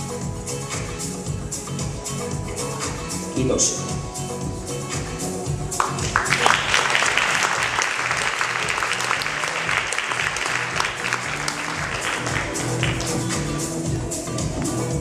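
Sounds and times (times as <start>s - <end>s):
background music with steady beat: 0.0s - 15.0s
audience applauding: 5.7s - 14.0s.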